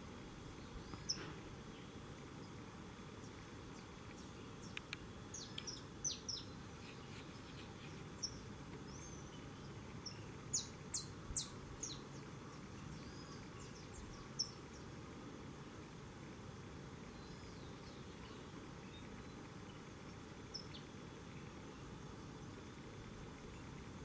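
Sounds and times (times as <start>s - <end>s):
faint background noise: 0.0s - 24.0s.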